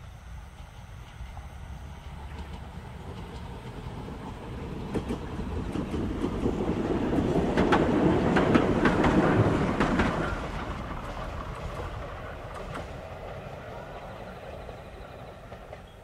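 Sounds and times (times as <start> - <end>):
train wheels clacking over rail joints: 2.0 - 13.4.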